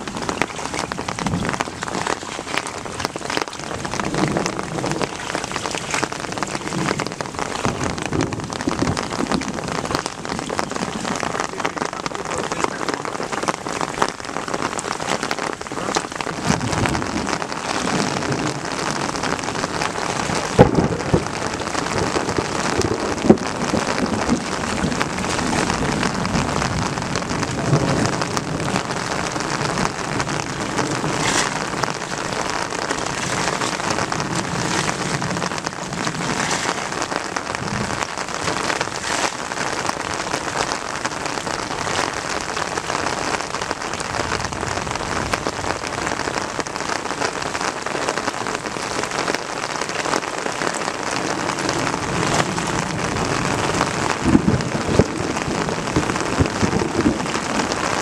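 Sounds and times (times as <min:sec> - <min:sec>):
muddy water splashing: 0:00.0 - 0:58.0.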